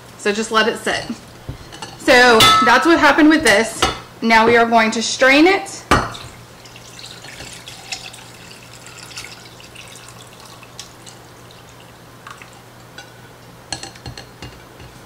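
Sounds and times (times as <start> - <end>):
steady low hum: 0.0 - 6.8
liquid trickling through strainer: 6.2 - 13.1
small drips and ticks: 6.6 - 13.2.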